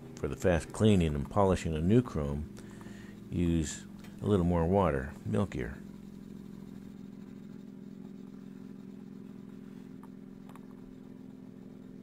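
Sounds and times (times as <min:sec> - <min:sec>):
small electric motor humming: 0:05.0 - 0:12.0.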